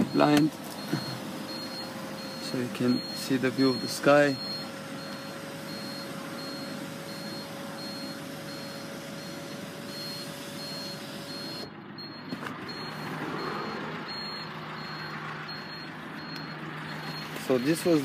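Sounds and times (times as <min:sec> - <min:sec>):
car cabin noise: 0:00.0 - 0:13.2.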